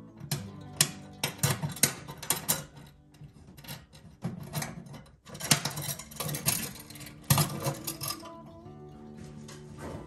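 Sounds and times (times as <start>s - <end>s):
metal hardware clinking on steel: 3.6s - 8.4s.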